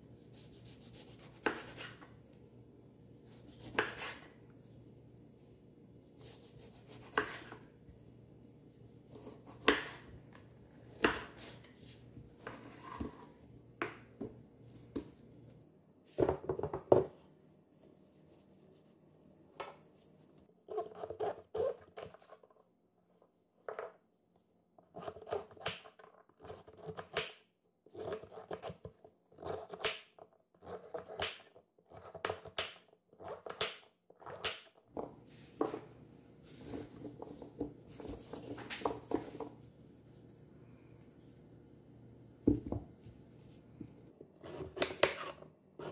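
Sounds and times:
knife chopping on cutting board: 0.4s - 2.0s, 3.3s - 4.3s, 6.2s - 7.6s, 9.1s - 10.0s, 11.0s - 11.6s.

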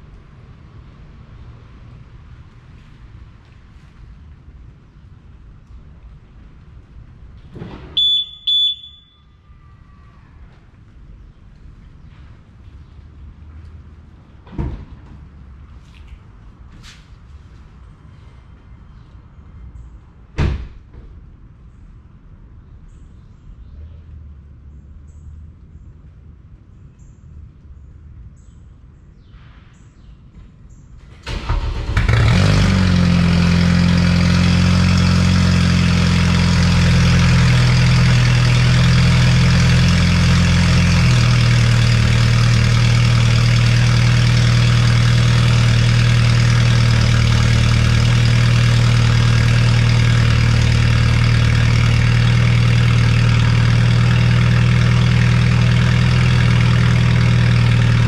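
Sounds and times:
car engine idling: 31.0s - 58.0s
car engine starting: 31.0s - 58.0s.

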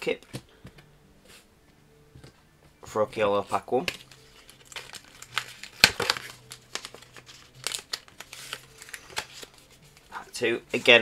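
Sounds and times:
plastic wrapper crackling: 3.8s - 10.1s.

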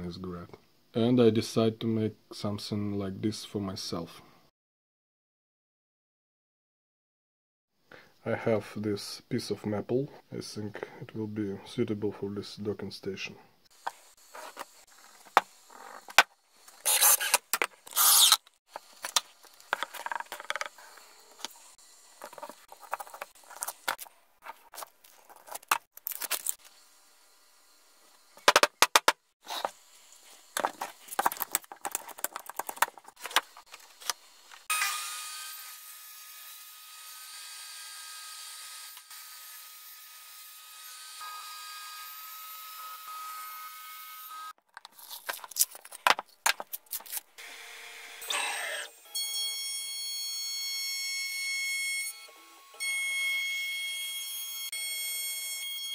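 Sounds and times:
table saw whining: 13.9s - 24.0s, 33.4s - 44.5s, 47.4s - 55.9s
tools clicking and scraping on mat: 30.5s - 34.6s.

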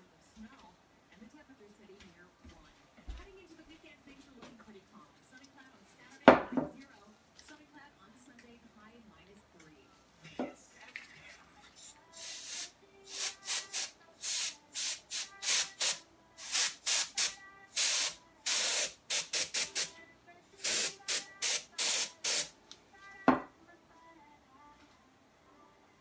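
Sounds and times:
compressed air hisses: 12.2s - 19.9s, 20.6s - 22.5s.

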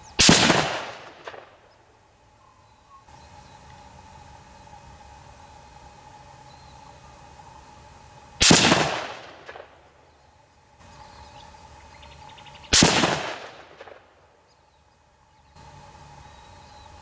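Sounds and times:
rifle shots with echo: 0.2s - 1.6s, 8.4s - 9.9s, 12.7s - 14.2s.

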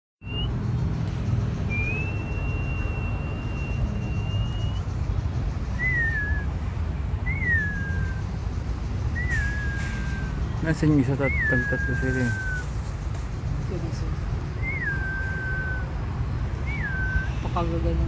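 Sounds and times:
person whistling: 1.7s - 4.8s, 5.8s - 6.5s, 7.3s - 8.2s, 9.2s - 10.3s, 14.6s - 15.9s, 16.7s - 17.3s.

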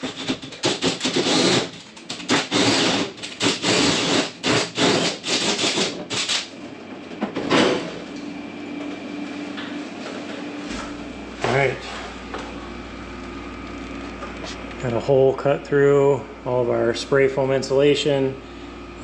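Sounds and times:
drill cutting with hole saw: 0.0s - 6.5s.

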